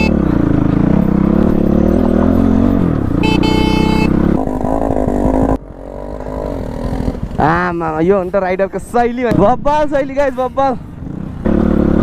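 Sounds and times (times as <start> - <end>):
motorcycle horn beep: 0.0 - 0.5, 3.1 - 4.4
motorcycle engine running: 0.0 - 8.0, 10.9 - 12.0.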